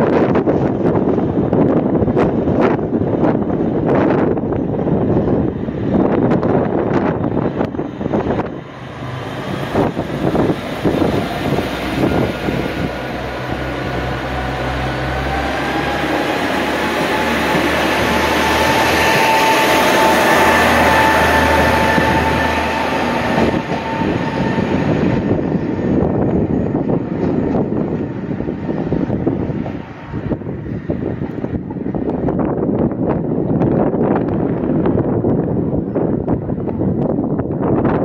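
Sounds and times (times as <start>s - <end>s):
diesel railcar engine running: 0.0s - 38.0s
train wheels rolling: 0.3s - 37.2s
rising whine: 5.4s - 32.6s.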